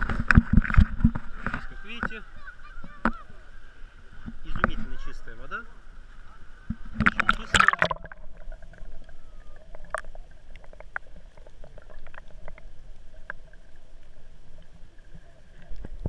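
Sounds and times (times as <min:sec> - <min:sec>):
small clicks of water: 0:00.0 - 0:03.4, 0:06.6 - 0:16.0
water splashing: 0:00.0 - 0:16.0.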